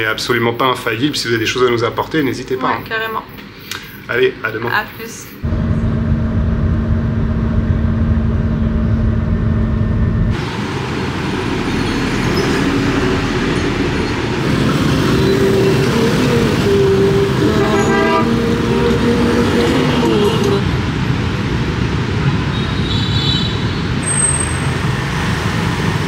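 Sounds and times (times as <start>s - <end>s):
traffic noise: 0.0s - 26.0s
heavy vehicle rumble: 5.4s - 22.5s
vehicle horn long tones: 15.2s - 20.6s.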